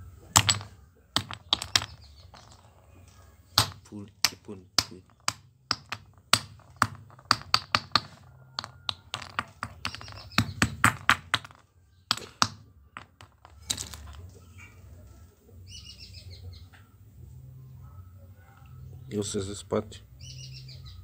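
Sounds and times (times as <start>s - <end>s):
stone knocking on padlock: 0.4s - 2.8s, 3.6s - 14.2s
bird chirping: 1.4s - 3.4s, 9.8s - 12.4s, 15.6s - 16.9s, 20.0s - 21.0s.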